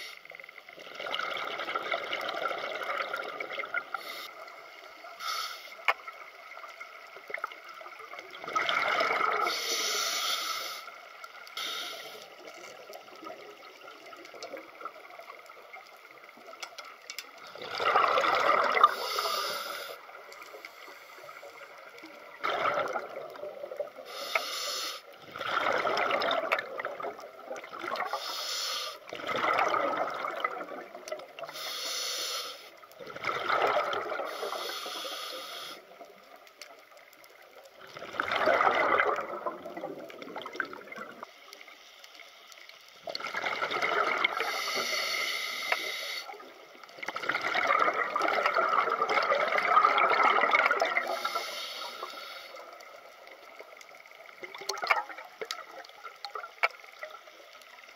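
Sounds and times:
regulator hiss on inhale: 0.0s - 0.5s, 3.9s - 6.2s, 9.4s - 12.7s, 18.8s - 21.9s, 24.0s - 25.2s, 28.0s - 29.1s, 31.4s - 32.9s, 34.2s - 36.2s, 44.3s - 46.5s, 51.0s - 53.4s
rush of bubbles: 0.0s - 10.1s, 10.8s - 16.5s, 17.4s - 24.3s, 25.0s - 31.6s, 32.9s - 36.4s, 37.4s - 41.3s, 43.0s - 57.9s.

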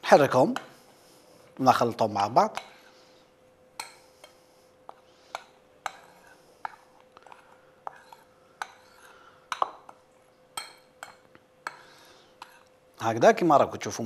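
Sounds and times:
spoon scraping flour: 3.8s - 12.7s
metal spoon clinking on bowl: 10.6s - 12.7s.

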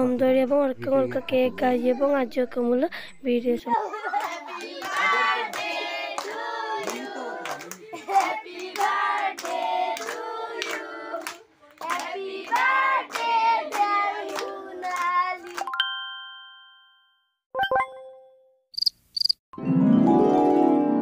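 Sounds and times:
adults and children singing: 3.7s - 15.6s
people clapping in time: 4.1s - 15.7s.

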